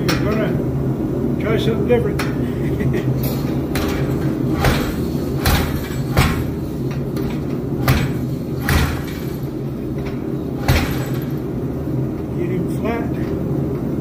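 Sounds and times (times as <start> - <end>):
steady low hum: 0.0 - 14.0
hammer striking hot steel: 3.4 - 9.6, 10.6 - 11.4.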